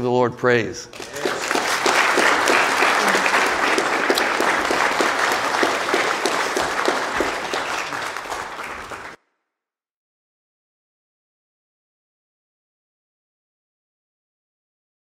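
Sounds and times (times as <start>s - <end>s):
congregation applauding: 0.9s - 9.2s.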